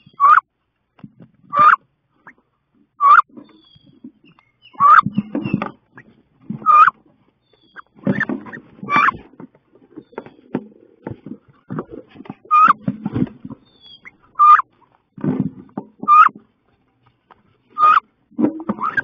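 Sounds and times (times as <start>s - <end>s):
ducks calling: 0.0s - 0.5s, 1.5s - 2.4s, 3.0s - 7.0s, 7.6s - 11.0s, 11.7s - 12.9s, 13.6s - 14.9s, 16.0s - 16.4s, 17.7s - 19.0s
birds scuffling and knocking: 0.0s - 19.0s.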